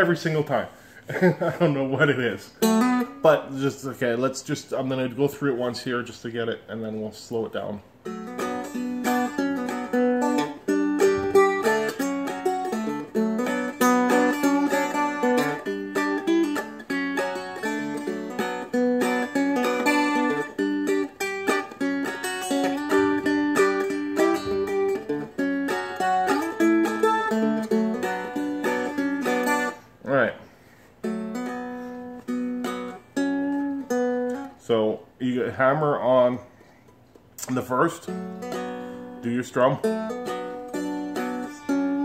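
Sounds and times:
plucked dulcimer strums: 0:08.1 - 0:29.8.

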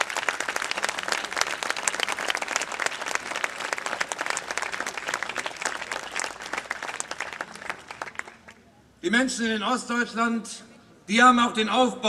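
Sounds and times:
crowd applauding: 0:00.0 - 0:08.6.

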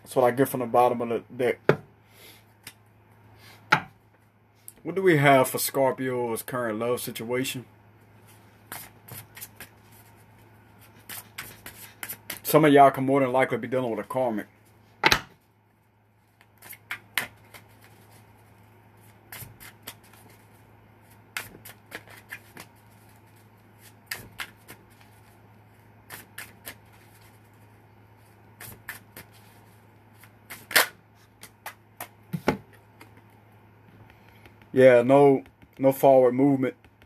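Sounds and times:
low steady hum: 0:00.0 - 0:37.0
cards being shuffled: 0:16.3 - 0:18.4, 0:19.0 - 0:25.4, 0:28.6 - 0:33.4.

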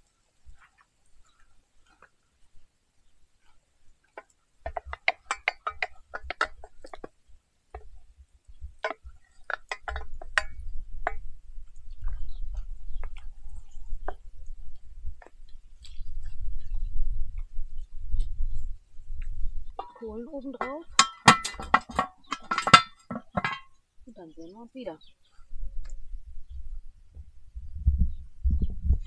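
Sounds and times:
metal cooking gear clinking: 0:04.7 - 0:07.1, 0:19.8 - 0:23.8.

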